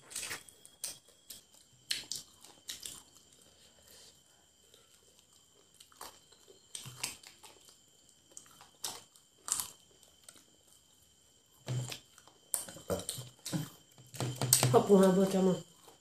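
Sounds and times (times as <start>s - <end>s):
chewing crunches: 0.0s - 3.6s, 4.6s - 10.9s.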